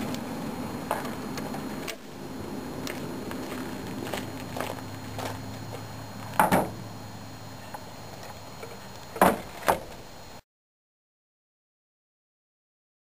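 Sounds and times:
low steady hum: 0.0 - 10.4.

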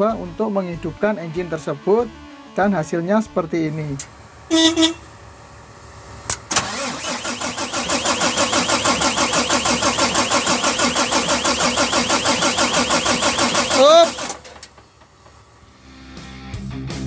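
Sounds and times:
diesel engine cranking: 3.6 - 15.7.

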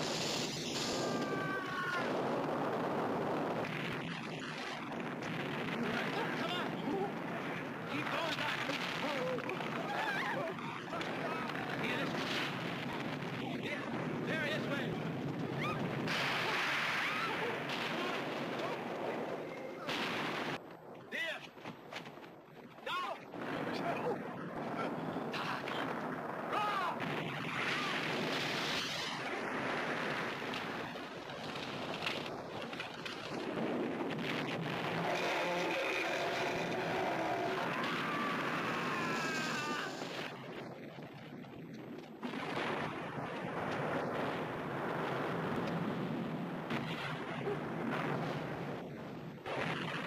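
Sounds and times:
explosion blasts: 0.0 - 20.6, 23.3 - 50.0
dense continuous rumble: 0.0 - 50.0
large fire roaring: 0.0 - 50.0.

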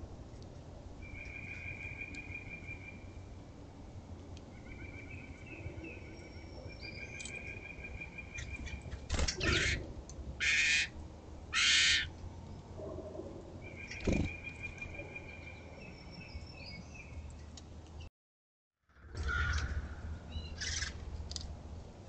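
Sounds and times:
small birds wing fluttering: 13.9 - 14.3.

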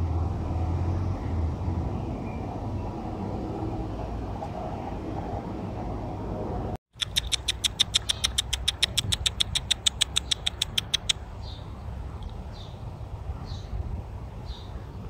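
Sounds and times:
person making kissing clicks: 6.9 - 11.2.

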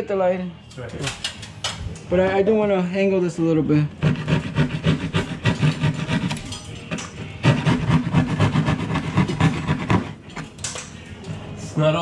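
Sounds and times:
drywall being cut and scraped: 3.9 - 10.2.

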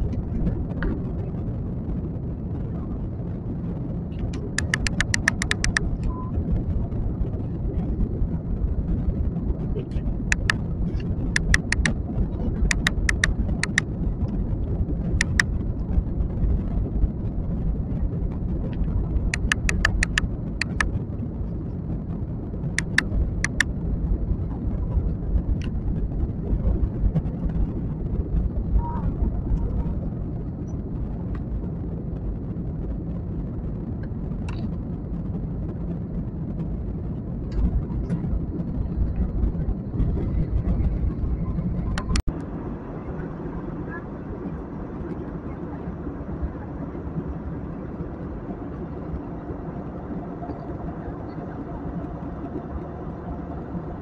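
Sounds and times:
jet engines roaring in cabin: 0.0 - 54.0
rushing air: 0.0 - 54.0
short sharp clicks: 4.6 - 5.8, 10.3 - 10.6, 11.4 - 11.9, 12.7 - 13.8, 15.2 - 15.5, 19.4 - 20.9, 22.8 - 23.6.

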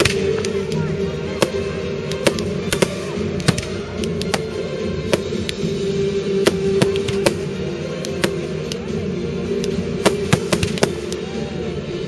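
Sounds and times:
sustained background tones: 0.0 - 12.0
firework shells bursting: 6.4 - 8.8, 9.6 - 11.2.

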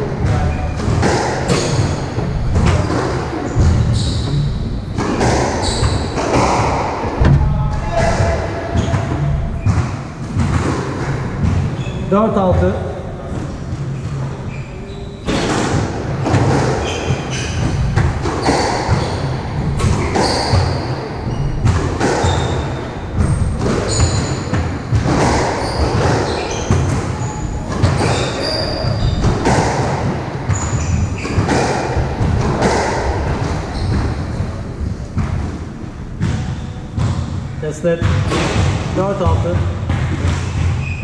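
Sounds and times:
shoes squeaking on wooden floor: 0.0 - 35.7
squash ball smacking: 0.2 - 12.7, 15.3 - 41.0.

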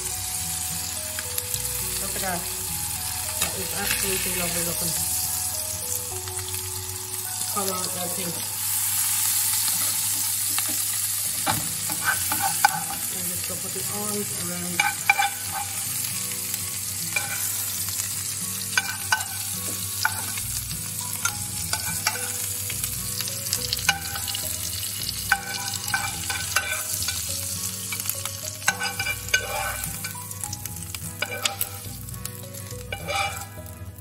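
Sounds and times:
frying pan sizzling: 0.0 - 34.0
spoon scraping and clicking on pan: 11.4 - 13.0, 14.8 - 15.8, 18.8 - 20.4, 21.2 - 22.4, 25.3 - 27.3, 27.9 - 30.2, 31.2 - 31.9, 32.9 - 33.5.

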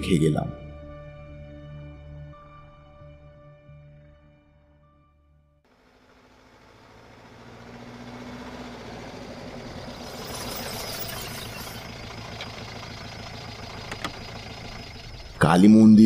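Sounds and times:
vehicle engine low rumble: 5.7 - 16.0.

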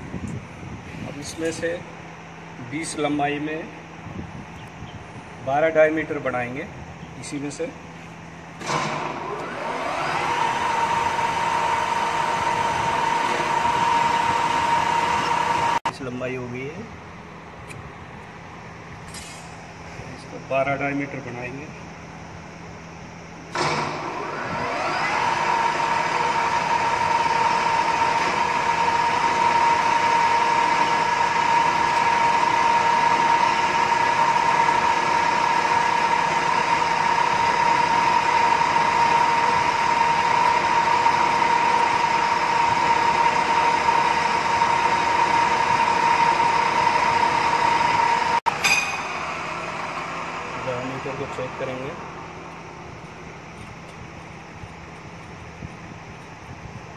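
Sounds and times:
lathe running with whine: 8.6 - 15.9, 23.5 - 56.9.

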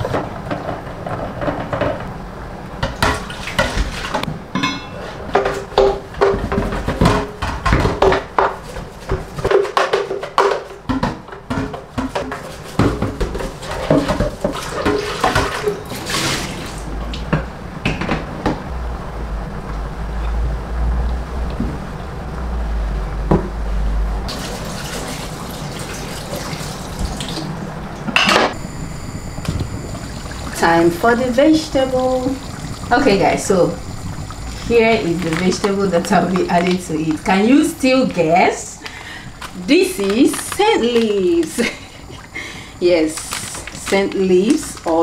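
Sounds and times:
dishes clinking in a metal sink: 2.8 - 8.6
water splashing: 24.3 - 27.6, 29.3 - 37.3.

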